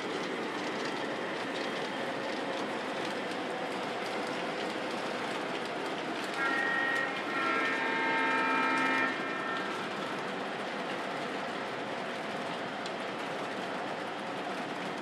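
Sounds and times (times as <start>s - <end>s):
model trains rumbling on track: 0.0s - 15.0s
multi-tone train horn: 6.2s - 10.2s.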